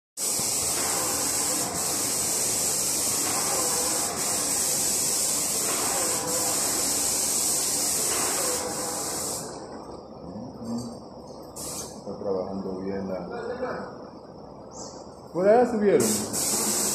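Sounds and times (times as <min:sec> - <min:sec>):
paint spray gun hissing: 0:00.2 - 0:09.6, 0:11.6 - 0:12.0, 0:16.0 - 0:16.9.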